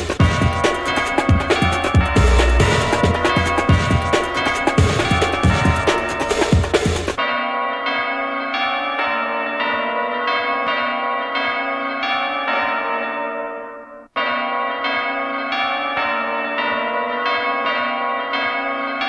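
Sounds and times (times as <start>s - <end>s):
drum and bass music: 0.0s - 7.2s
church bells ringing a peal: 0.1s - 19.0s.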